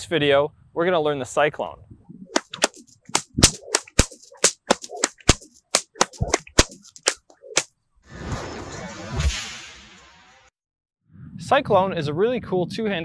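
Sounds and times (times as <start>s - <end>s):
whips cracking: 2.3s - 7.7s
whoosh sound effect: 8.1s - 10.1s.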